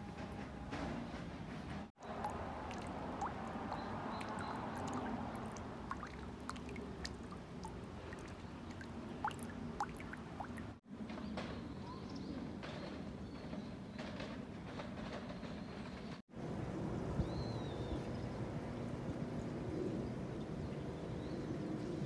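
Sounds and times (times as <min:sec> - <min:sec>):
steady outdoor hiss: 0:00.0 - 0:15.1, 0:16.3 - 0:22.0
water dripping into stone basin: 0:02.0 - 0:10.8.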